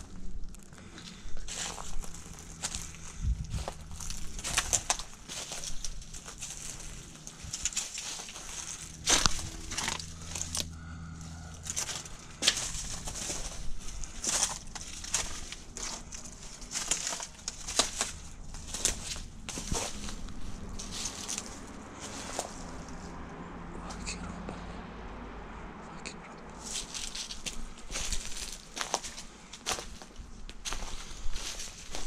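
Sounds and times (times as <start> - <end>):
footsteps crunching over debris: 0.0 - 23.2, 26.6 - 32.0.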